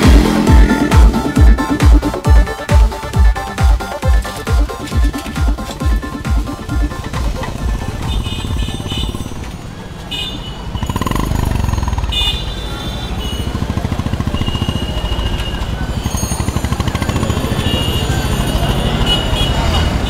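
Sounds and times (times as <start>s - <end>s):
motorcycle engines running: 0.0s - 20.0s.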